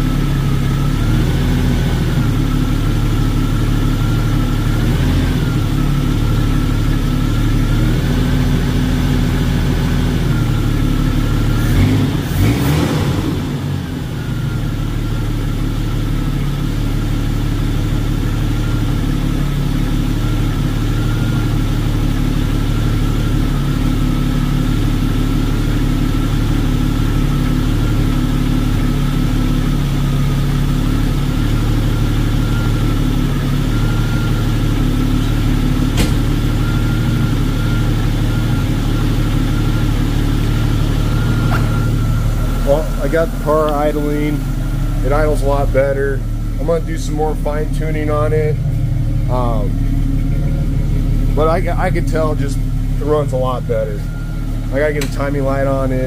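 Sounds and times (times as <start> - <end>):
car engine idling: 0.0 - 56.0
thin steady whine: 13.8 - 56.0.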